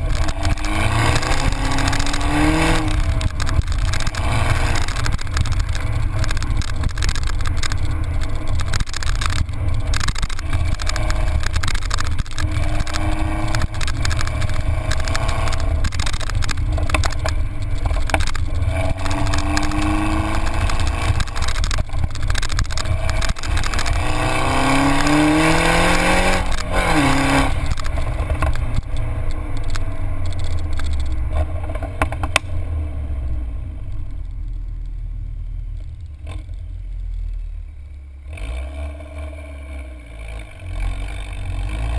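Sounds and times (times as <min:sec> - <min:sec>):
car exhaust note under acceleration: 0:00.0 - 0:30.4
wind and road noise rumble: 0:00.0 - 0:41.9.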